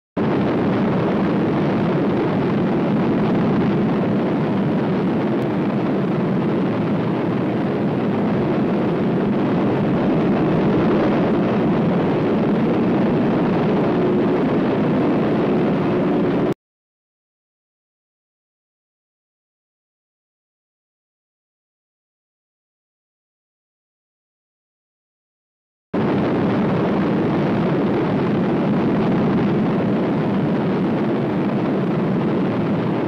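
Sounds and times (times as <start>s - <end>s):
dense low rumble: 0.2s - 16.6s, 26.0s - 33.0s.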